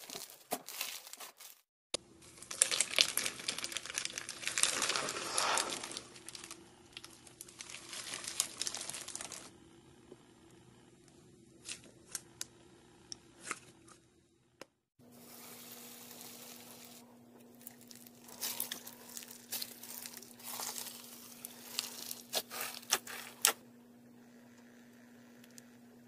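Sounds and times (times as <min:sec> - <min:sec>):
faint steady hum: 0:02.0 - 0:26.0
bead slime crackling: 0:16.0 - 0:23.6.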